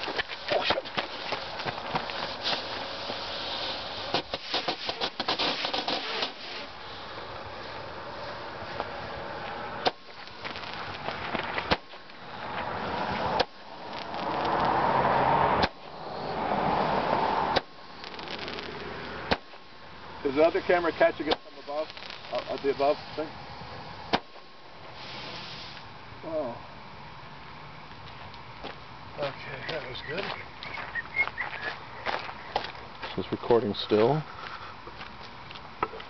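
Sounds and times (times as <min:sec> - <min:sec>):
firework bangs: 0:00.0 - 0:06.8, 0:09.8 - 0:19.7, 0:20.3 - 0:23.3, 0:24.0 - 0:25.8
firework crackling pops: 0:00.0 - 0:06.8, 0:09.5 - 0:23.3, 0:24.0 - 0:25.9
firework hiss: 0:00.0 - 0:27.1.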